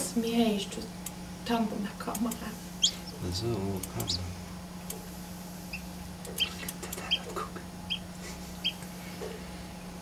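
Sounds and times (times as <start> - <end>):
steady low hum: 0.0 - 10.0
chick peeping: 2.8 - 3.2, 5.7 - 8.9.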